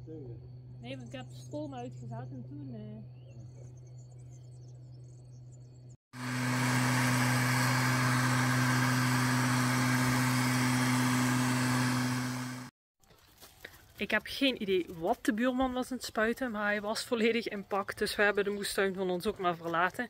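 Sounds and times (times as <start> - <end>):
engine running steadily: 6.2 - 12.7.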